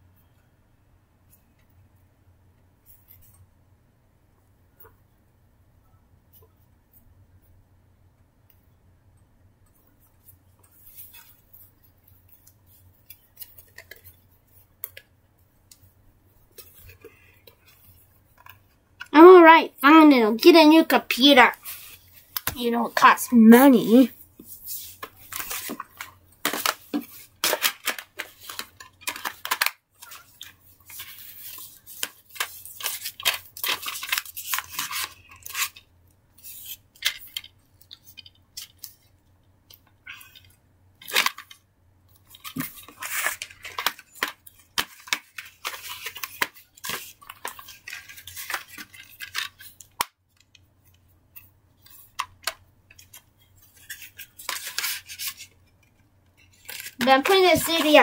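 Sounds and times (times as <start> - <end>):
plastic cases clacking and rustling: 25.0 - 31.2.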